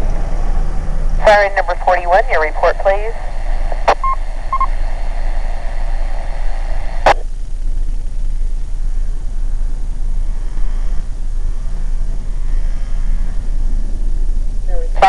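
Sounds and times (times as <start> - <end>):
steady low rumble: 0.0 - 15.0
radio static hiss: 1.1 - 15.0
radio squelch click: 3.8 - 4.1.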